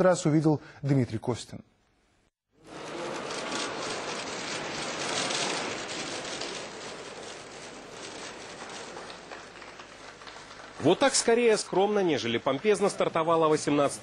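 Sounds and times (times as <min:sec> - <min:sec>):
audience applauding: 0:02.6 - 0:13.7.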